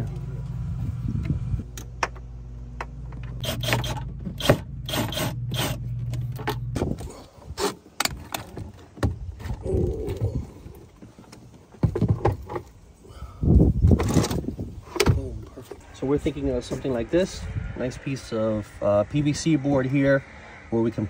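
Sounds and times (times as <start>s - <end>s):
plastic parts clattering and scraping: 13.8s - 15.8s.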